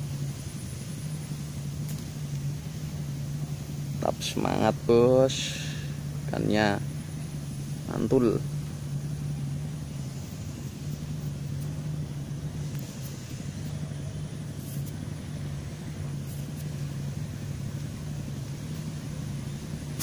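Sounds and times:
faint rumble: 0.0 - 20.0
motor engine humming: 0.0 - 20.0.

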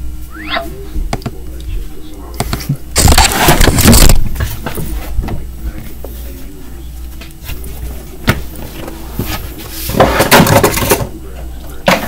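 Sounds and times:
steady low hum: 0.0 - 12.0
rustling and knocking: 8.3 - 11.2.

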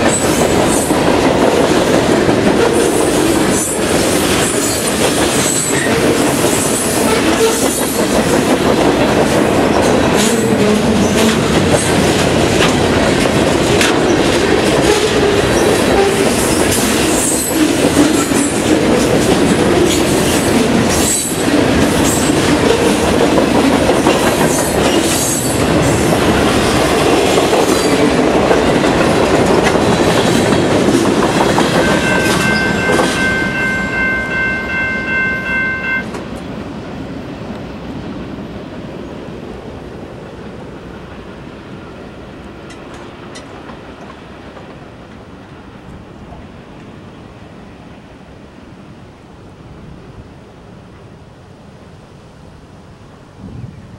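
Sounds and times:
train wheels rumbling on rail: 0.0 - 53.9
train horn: 6.9 - 7.8.

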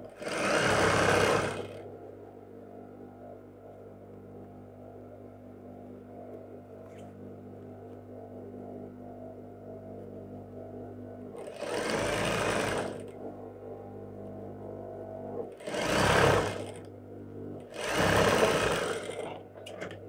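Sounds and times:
sewing machine stitching: 0.0 - 1.8, 11.4 - 13.1, 15.6 - 16.9, 17.7 - 19.9
steady low hum: 1.4 - 20.0.

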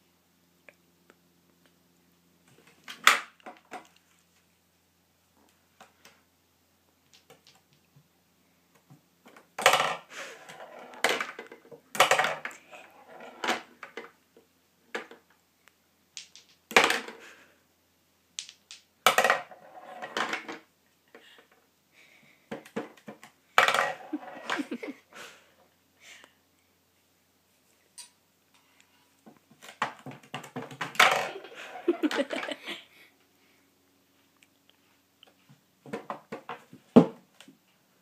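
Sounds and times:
balls rattling down ball return: 9.3 - 14.1, 16.2 - 17.2, 18.4 - 20.7, 29.6 - 32.6
pool balls clacking: 18.4 - 20.7, 22.6 - 24.9, 29.6 - 32.6.

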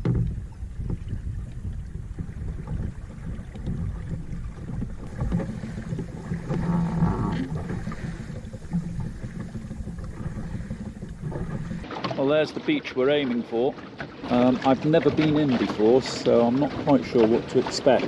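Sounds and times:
wind buffeting microphone: 0.0 - 11.9
water splashing along boat hull: 0.0 - 18.0.

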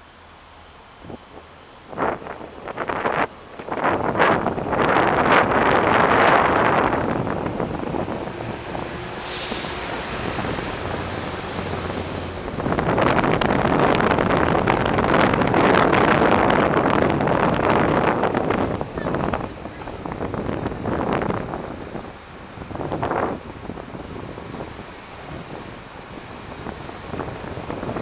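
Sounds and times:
skateboard wheels rolling on pavement: 0.0 - 28.0
wind buffeting microphone: 1.0 - 28.0
short sharp hiss: 9.2 - 9.9.

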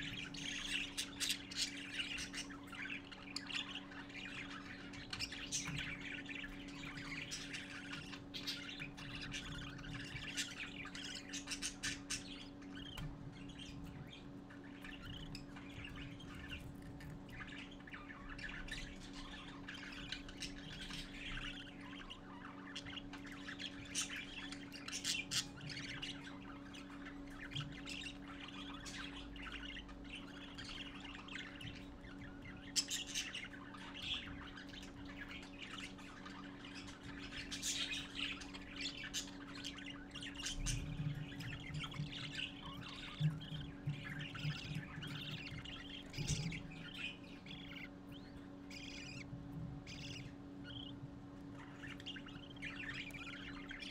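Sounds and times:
budgerigar chicks chirping: 0.0 - 53.9
steady low hum: 0.0 - 53.9.

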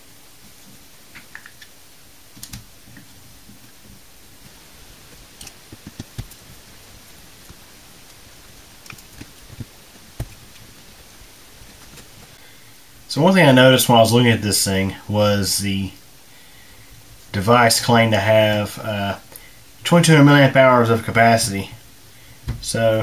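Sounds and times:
hands handling a speaker: 2.4 - 12.4.

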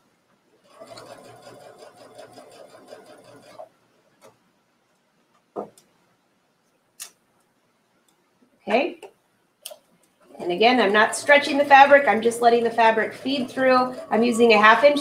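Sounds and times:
sewing machine stitching: 0.6 - 3.7, 10.5 - 15.0.

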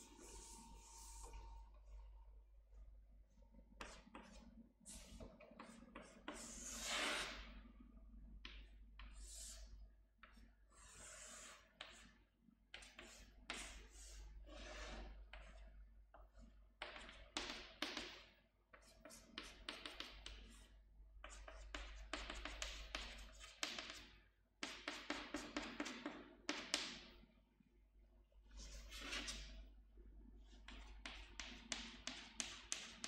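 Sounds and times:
chalk scraping on chalkboard: 0.0 - 1.4, 3.8 - 7.6, 8.5 - 26.0, 28.5 - 29.6, 30.5 - 33.0.

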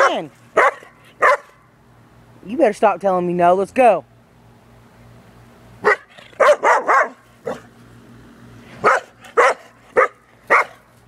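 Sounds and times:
dog barking sharply: 0.0 - 1.6, 5.8 - 7.6, 8.8 - 10.8.

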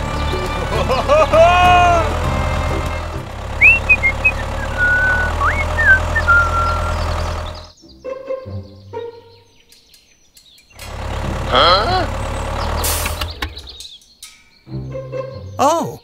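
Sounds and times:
tractor engine humming: 0.0 - 7.8, 10.8 - 13.8
birds chirping: 0.0 - 16.0.

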